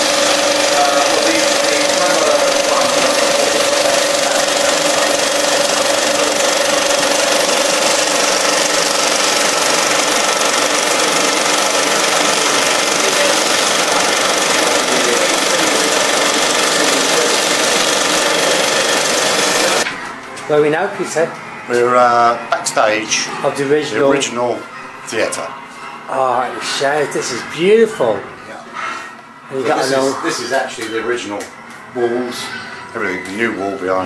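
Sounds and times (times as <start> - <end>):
film projector running: 0.0 - 25.5.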